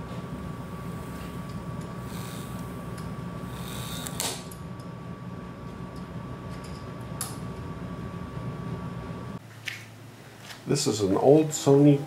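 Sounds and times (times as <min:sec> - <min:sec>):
small motor humming and whining: 0:00.0 - 0:04.6.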